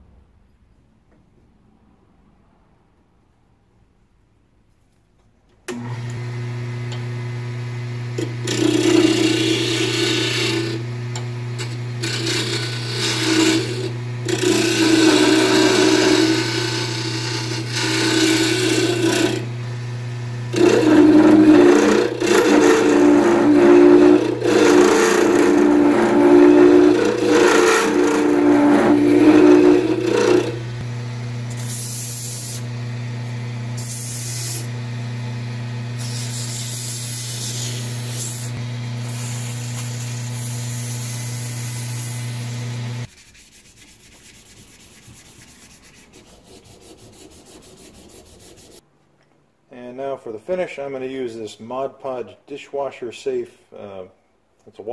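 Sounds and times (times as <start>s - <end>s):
lathe motor humming: 5.7s - 36.1s
turning tool scraping wood: 8.2s - 19.6s, 20.5s - 30.9s, 43.0s - 48.8s.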